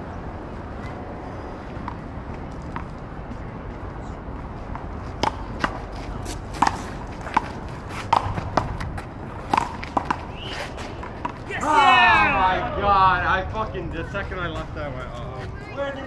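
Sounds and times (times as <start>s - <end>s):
outdoor background noise: 0.0s - 16.0s.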